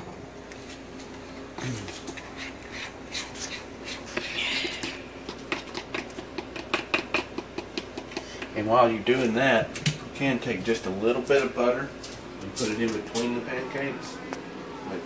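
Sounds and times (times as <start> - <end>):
batter stirred in plastic bowl: 0.6 - 9.4
utensil tapping bowl side: 4.1 - 8.6.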